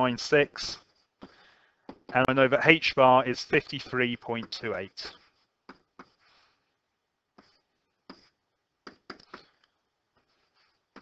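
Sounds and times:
stylus tapping on tablet screen: 1.2 - 2.3, 5.6 - 6.3, 7.3 - 10.3.

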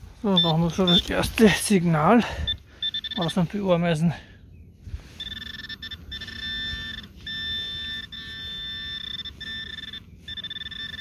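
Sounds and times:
high electronic alert tone: 0.3 - 1.2, 2.8 - 3.4, 5.2 - 11.0.

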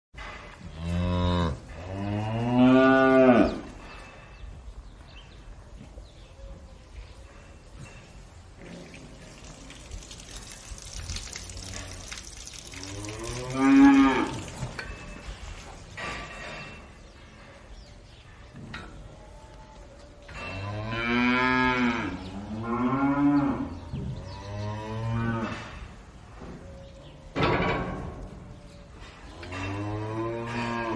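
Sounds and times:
faint barn background: 0.2 - 30.9
cows mooing: 0.7 - 3.7, 12.7 - 14.8, 20.3 - 25.9, 29.4 - 30.9
cow mooing: 12.8 - 14.5.

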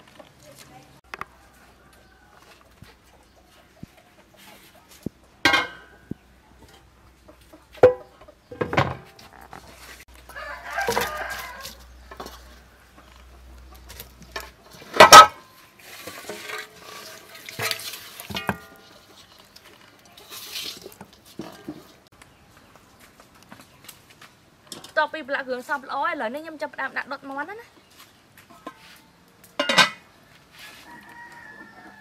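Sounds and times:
chickens clucking: 1.1 - 15.2
cooking pot and lid clanking: 5.5 - 6.1, 7.8 - 9.2, 14.3 - 15.4, 16.4 - 18.9, 29.6 - 30.1
rooster crowing: 10.3 - 12.7, 30.7 - 32.0.

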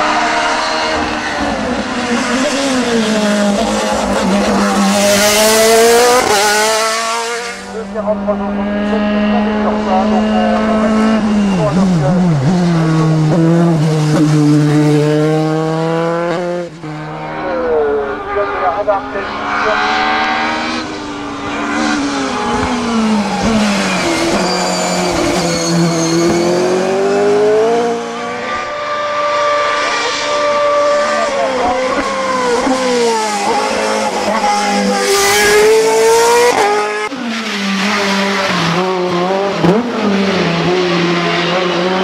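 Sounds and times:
racing car engines revving: 0.0 - 42.0.

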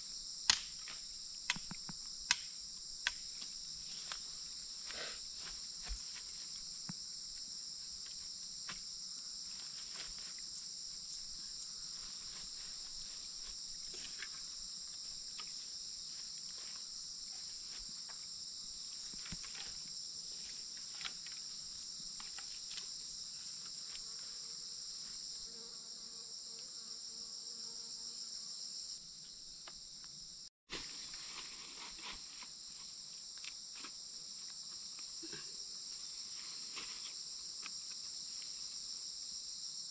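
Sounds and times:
insect chorus buzzing: 0.0 - 39.9
sticks clicking and rustling in grass: 0.5 - 4.3, 19.1 - 21.6, 22.2 - 22.9.

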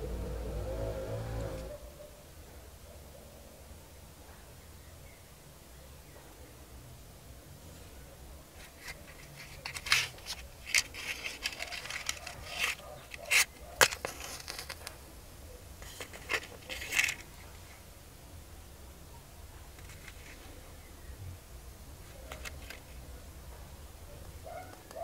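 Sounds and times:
matchbox scrapes and clicks: 8.6 - 15.0, 15.8 - 17.4, 19.8 - 20.4, 22.2 - 23.0.

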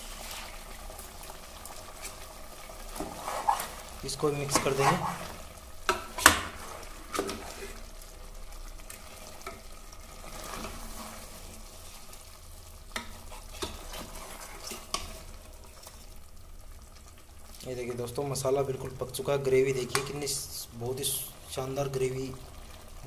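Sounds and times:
food sizzling: 0.0 - 23.0
metal spoon scraping a pot: 13.2 - 15.2.

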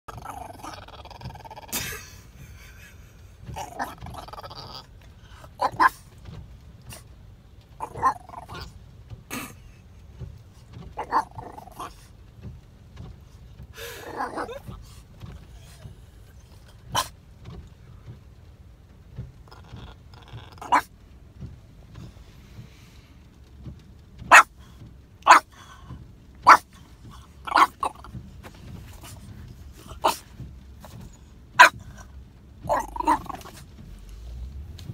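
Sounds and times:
dog grumbling: 0.1 - 2.1, 3.5 - 5.0, 7.8 - 8.7, 11.0 - 12.0, 13.8 - 14.8, 19.5 - 20.9, 27.4 - 28.1, 32.7 - 33.6
dog barking: 5.6 - 6.0, 7.8 - 8.7, 11.0 - 11.9, 14.0 - 14.6, 16.9 - 17.1, 20.6 - 20.9, 24.3 - 24.5, 25.2 - 25.5, 26.4 - 26.7, 27.4 - 28.1, 29.9 - 30.2, 31.6 - 31.8, 32.7 - 33.6.

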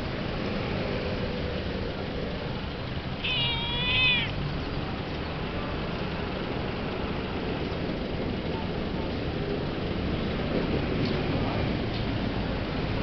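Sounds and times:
steady background noise: 0.0 - 13.0
kitten meowing: 3.2 - 4.4.

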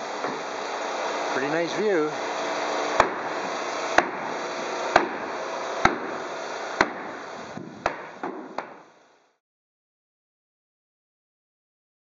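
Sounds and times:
steady hiss: 0.0 - 9.4.

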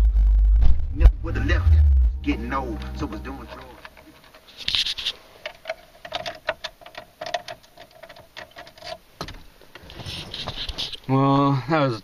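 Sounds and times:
faint steady tone: 1.4 - 4.5.

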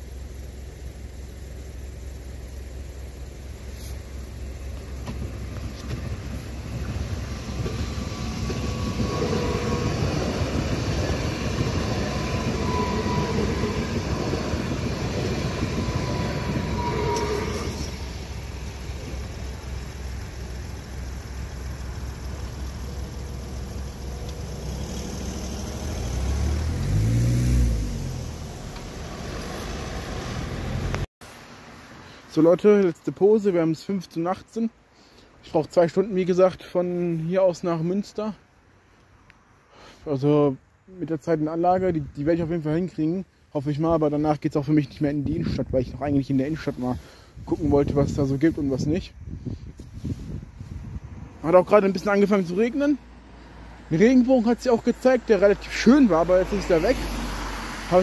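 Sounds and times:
electric train passing: 4.2 - 31.0
car driving past: 5.6 - 19.9, 22.2 - 31.1, 55.2 - 58.0.

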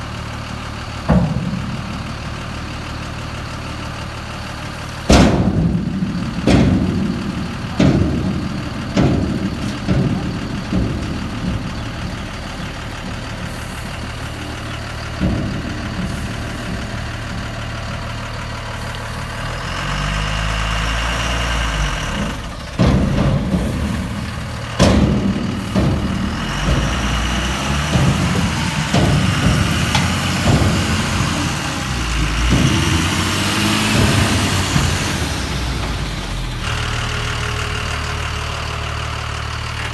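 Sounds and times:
diesel engine idling and revving: 0.0 - 39.9
sharp knocks: 22.8 - 36.4.

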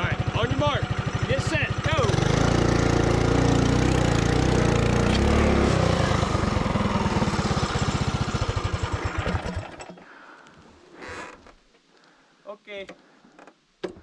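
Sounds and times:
mini bike engine climbing: 0.0 - 10.1.

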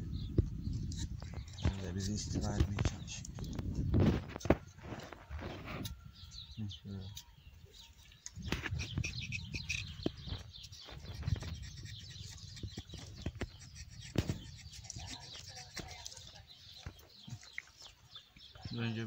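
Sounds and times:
small bird chirping: 0.0 - 19.0
knife scraping bark: 8.6 - 10.0, 10.6 - 16.2.

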